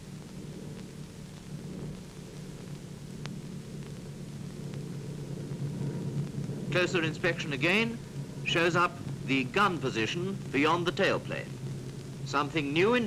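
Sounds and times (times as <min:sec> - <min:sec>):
faint film hiss: 0:00.0 - 0:13.0
piston aircraft engines droning: 0:00.0 - 0:13.0.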